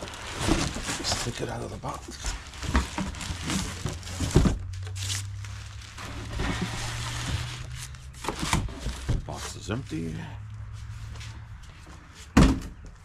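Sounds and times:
cardboard box rustling and scraping: 0.0 - 9.6
plastic wrapping crinkling: 0.0 - 9.8
thump: 12.4 - 12.8.

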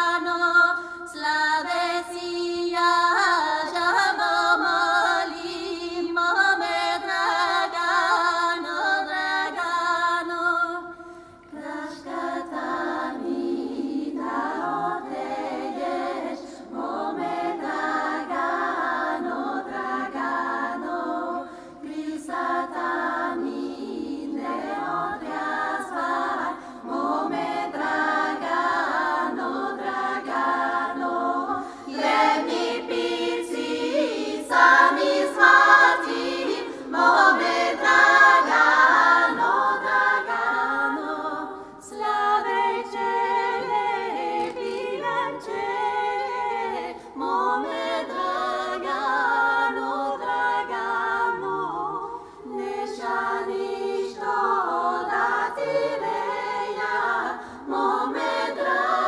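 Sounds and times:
women singing a cappella folk song: 0.0 - 59.0.

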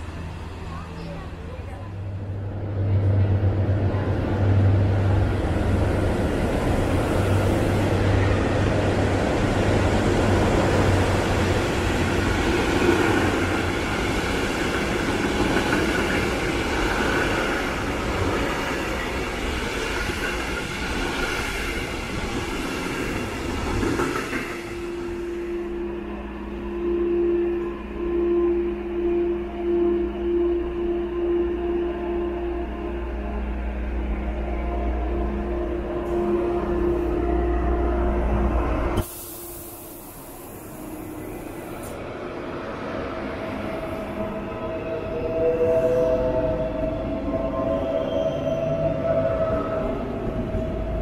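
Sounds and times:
train wheels rumbling on rail: 0.0 - 26.6
low hum: 24.7 - 47.5.

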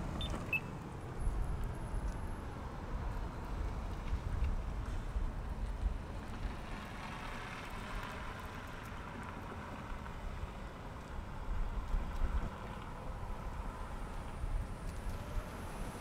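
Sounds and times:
vehicle tyre noise: 0.0 - 16.0
wind rumbling on microphone: 9.9 - 16.0.

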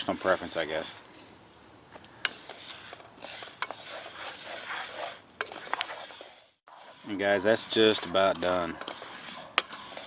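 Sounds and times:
oat grains scraping in a pan: 0.0 - 1.1, 2.1 - 10.0
wooden spoon stirring: 2.3 - 10.0.

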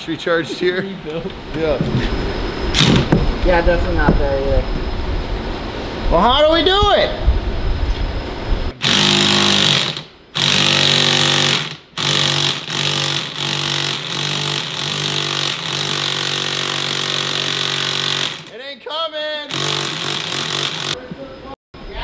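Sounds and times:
impact wrench hammering: 8.8 - 18.5, 19.5 - 21.0.

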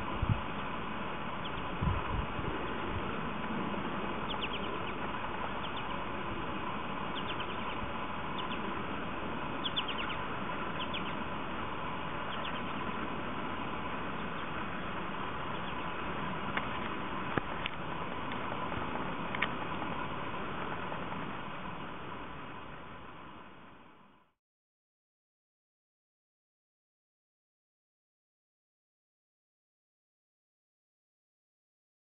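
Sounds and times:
open-air hiss: 0.0 - 24.4
high bird chirps: 4.2 - 5.0, 7.1 - 8.7, 9.6 - 11.2, 12.3 - 12.9.

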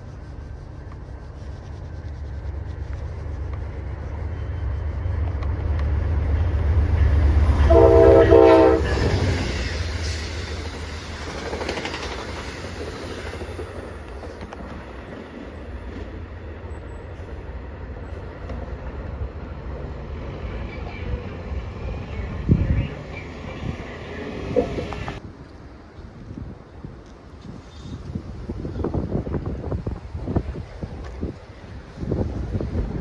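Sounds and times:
train rumble: 0.0 - 33.0
train horn blasts: 7.4 - 9.6.

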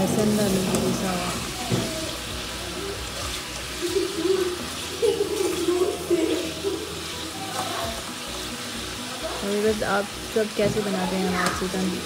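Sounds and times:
chicken sizzling in oil: 0.0 - 12.0.

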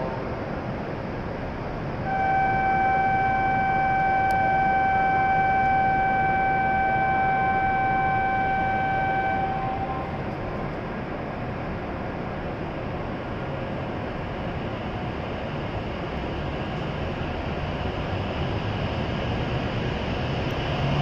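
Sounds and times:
station hum: 0.0 - 21.0
steady electronic signal tone: 2.0 - 10.6.

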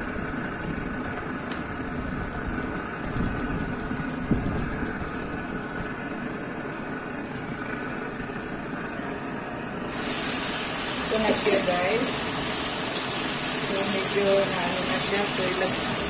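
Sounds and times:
chicken sizzling in hot oil: 9.0 - 16.0.

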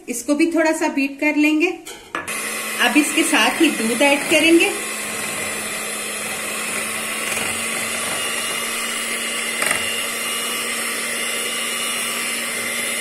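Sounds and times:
electric hand mixer whisking: 2.2 - 13.0.

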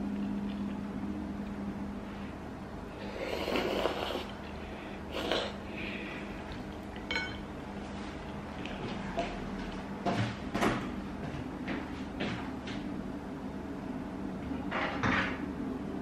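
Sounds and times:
person slurping noodles: 3.0 - 4.5, 5.1 - 5.7.

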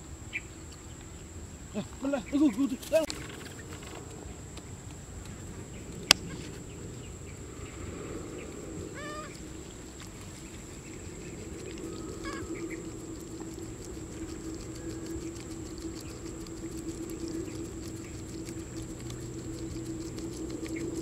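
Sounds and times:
high insect drone: 0.0 - 21.0
short chirping calls: 10.3 - 21.0.

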